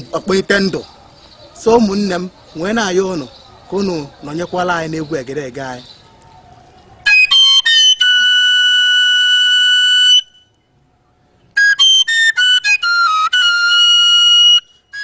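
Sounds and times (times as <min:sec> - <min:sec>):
wooden flute high notes: 0:07.0 - 0:10.6, 0:11.5 - 0:15.0.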